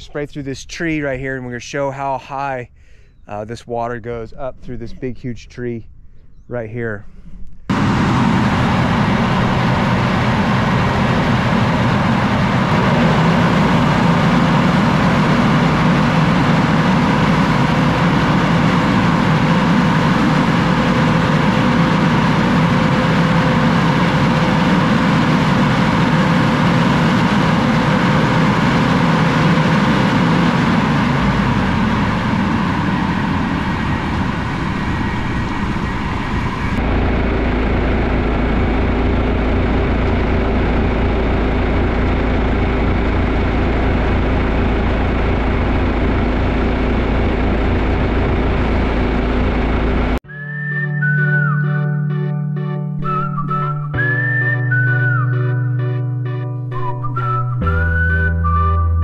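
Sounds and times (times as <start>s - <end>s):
tractor engine running: 0.0s - 59.0s
sprayer fan rushing: 7.5s - 50.2s.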